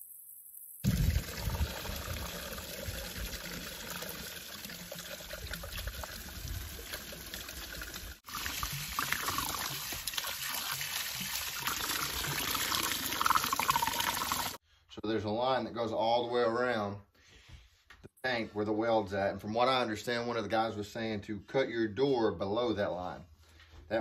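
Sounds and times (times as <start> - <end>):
water trickling and pouring: 0.6 - 14.6.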